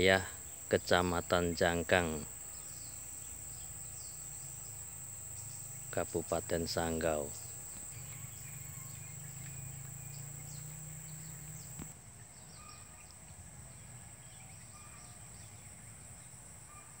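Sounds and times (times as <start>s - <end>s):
insects shrilling: 0.0s - 11.9s
faint low hum: 0.0s - 12.5s
click: 11.6s - 11.9s.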